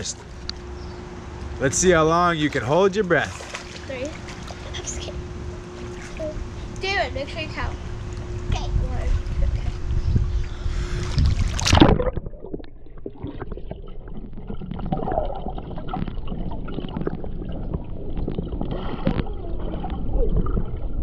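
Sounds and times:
muffled underwater rumbling: 3.4 - 21.0
camera splashing into water: 11.2 - 13.5.

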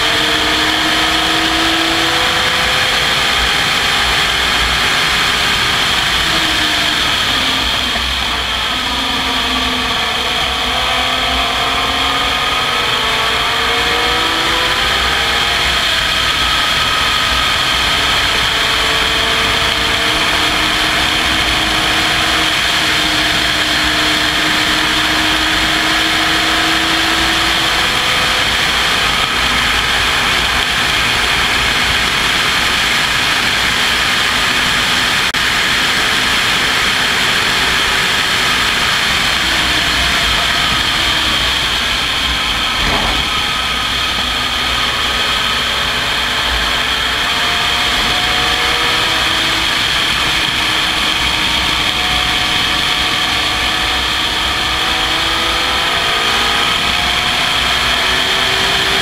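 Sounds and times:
race car engine: 0.0 - 59.0
wind rushing over camera: 39.4 - 45.6.

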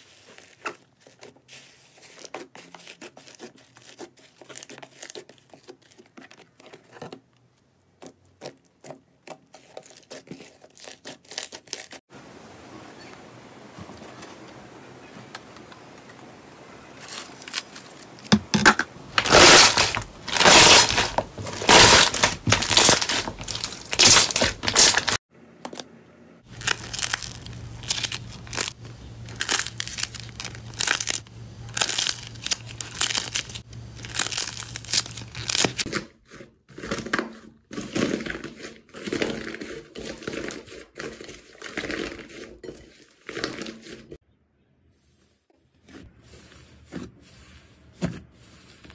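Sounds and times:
slime tearing crinkly: 9.5 - 12.0, 17.0 - 18.3, 19.1 - 25.2, 26.5 - 36.0
slime crackling and popping: 19.1 - 25.2, 26.5 - 35.9.

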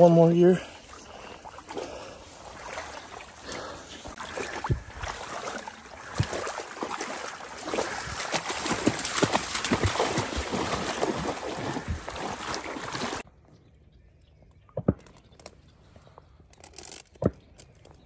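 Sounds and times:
wading through shallow water: 0.0 - 13.3
dog splashing through water: 0.9 - 13.2.

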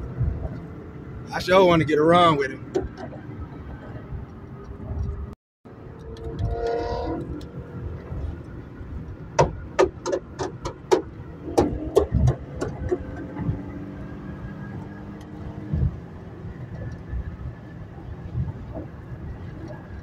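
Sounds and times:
engine and road noise drone: 0.0 - 20.0
exhaust pops and crackles: 5.9 - 13.8, 14.8 - 20.0.

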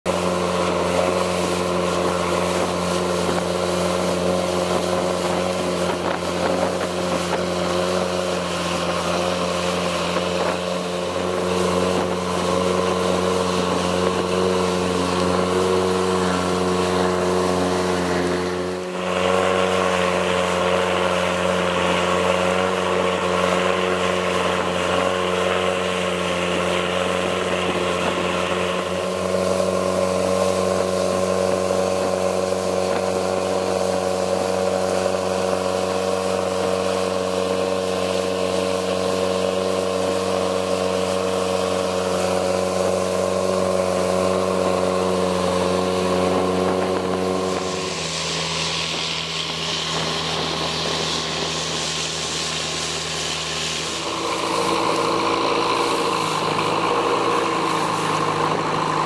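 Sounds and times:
boat engine droning: 0.0 - 59.0
water noise: 0.0 - 59.0
wind noise: 0.2 - 20.8, 42.8 - 59.0.

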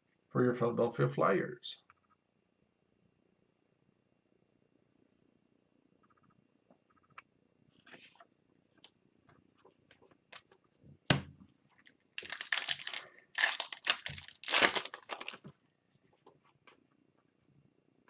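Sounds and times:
foil pack tearing: 12.2 - 15.5.

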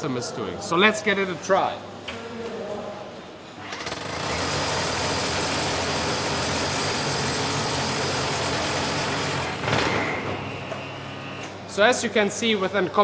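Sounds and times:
rotary hammers drilling concrete: 3.8 - 9.7.

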